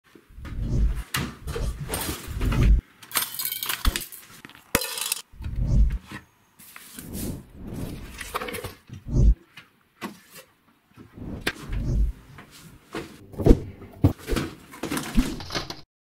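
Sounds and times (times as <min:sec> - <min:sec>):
metal cutlery clattering: 0:03.0 - 0:05.3.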